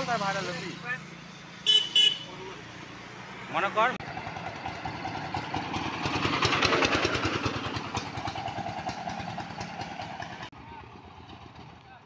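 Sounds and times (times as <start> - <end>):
diesel van engine chugging: 4.0 - 12.0.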